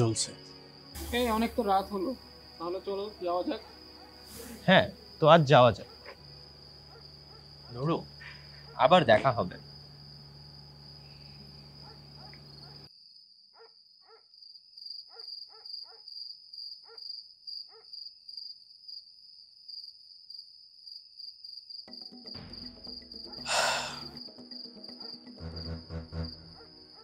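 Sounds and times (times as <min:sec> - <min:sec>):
low music bed: 0:00.0 - 0:08.2, 0:22.4 - 0:27.0
crickets chirping: 0:00.0 - 0:27.0.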